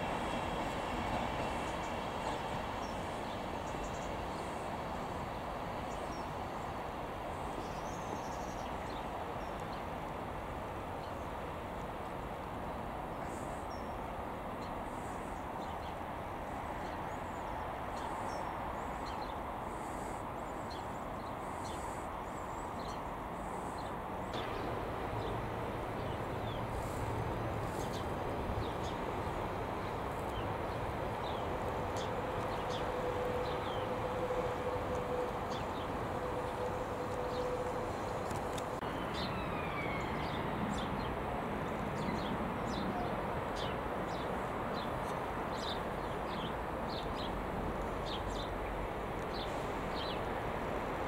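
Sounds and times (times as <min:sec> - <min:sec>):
diesel locomotive hum: 0:00.0 - 0:51.0
diesel train noise: 0:00.0 - 0:51.0
small birds chirping: 0:26.0 - 0:34.4.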